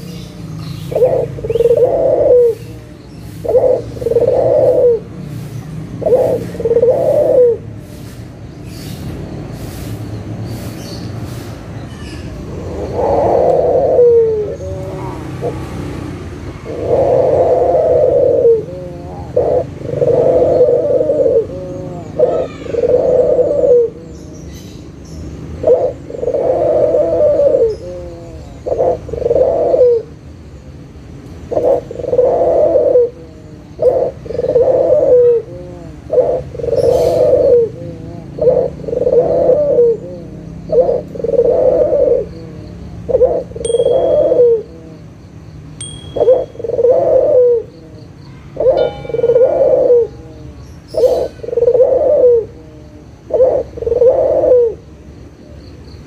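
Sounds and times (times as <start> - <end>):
dove cooing: 0.9 - 5.2, 6.0 - 7.8, 12.7 - 15.7, 16.6 - 24.2, 25.6 - 30.1, 31.5 - 45.1, 45.8 - 55.6
high peeps: 43.6 - 44.7, 45.8 - 47.6, 48.7 - 50.3.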